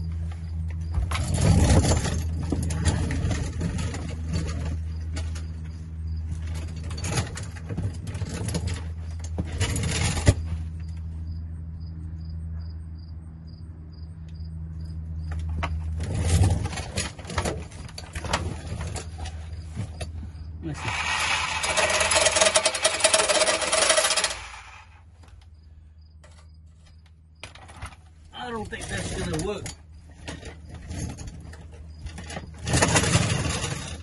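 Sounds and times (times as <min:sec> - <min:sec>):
metal tools clinking and scraping: 0:06.3 - 0:10.4, 0:20.8 - 0:24.9, 0:27.5 - 0:34.0.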